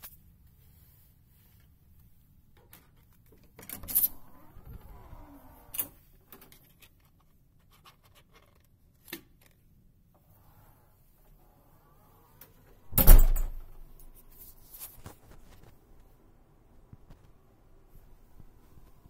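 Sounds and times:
door pushed open: 3.7s - 6.0s, 12.9s - 13.8s
door lock clicking open: 12.9s - 13.7s
door latching shut: 12.9s - 13.8s.

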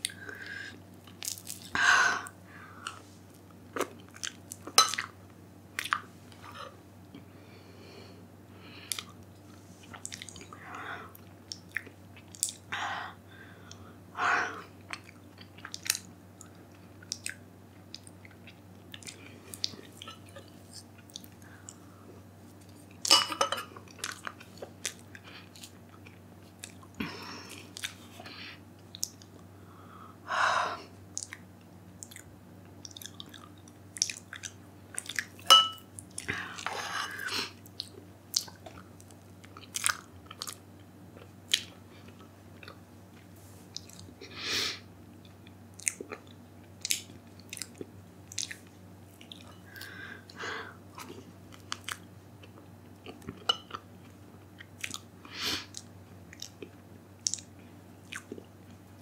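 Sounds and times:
wet mouth clicks and smacks: 46.8s - 48.6s, 57.2s - 57.5s.

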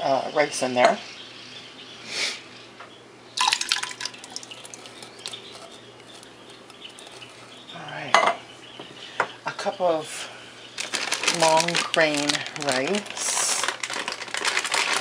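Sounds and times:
tomatoes plopping and dripping: 3.4s - 7.2s.

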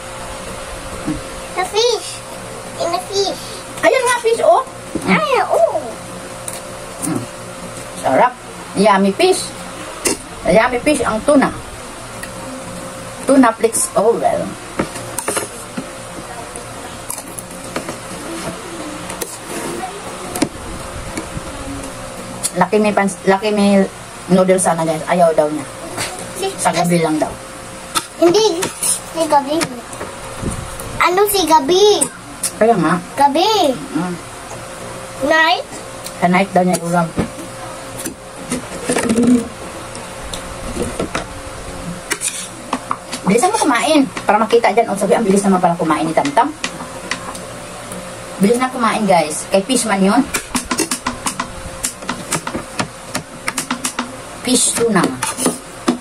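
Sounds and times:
faint background hum: 0.0s - 56.0s
murmured voice: 18.2s - 22.1s
cutlery scraping on plates: 42.1s - 42.6s, 55.2s - 55.6s.

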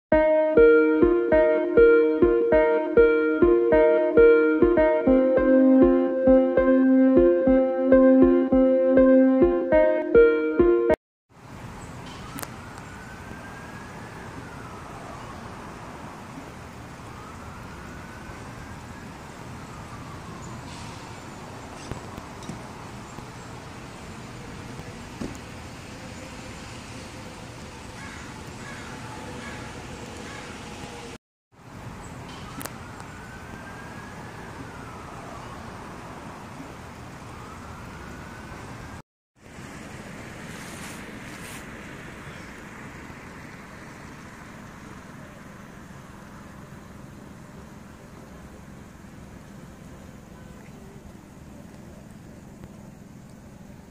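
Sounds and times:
siren wailing: 0.1s - 11.0s, 12.1s - 16.0s, 16.8s - 22.4s, 32.4s - 36.6s, 37.3s - 39.0s
street traffic hiss: 11.3s - 53.9s.

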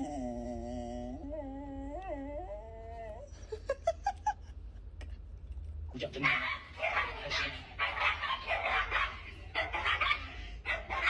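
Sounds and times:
dog howling: 0.0s - 3.3s.

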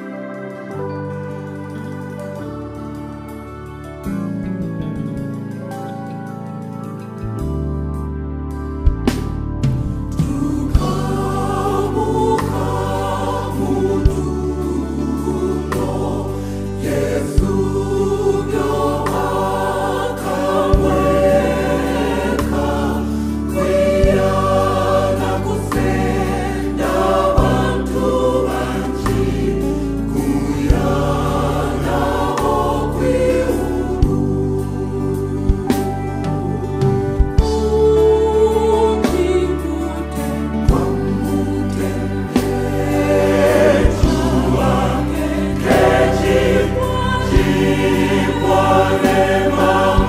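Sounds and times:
low bass line: 2.5s - 50.0s
women's choir singing gospel: 10.1s - 50.0s.

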